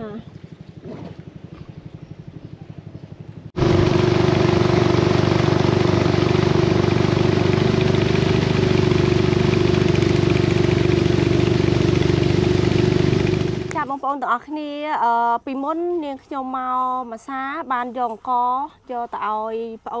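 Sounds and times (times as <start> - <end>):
boat engine running: 0.0 - 13.8.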